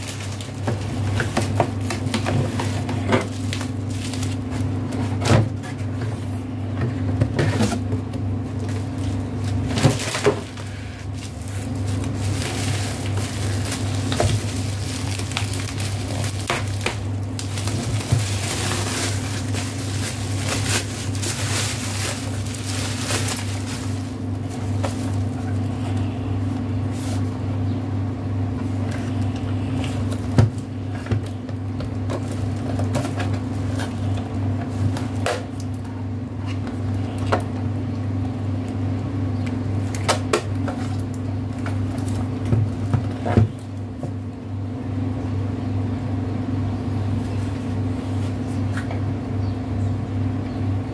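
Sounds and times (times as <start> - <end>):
bubble wrap crinkling: 0.0 - 6.0, 8.4 - 27.4, 28.7 - 35.8, 39.8 - 44.1
steady low hum: 0.0 - 50.9.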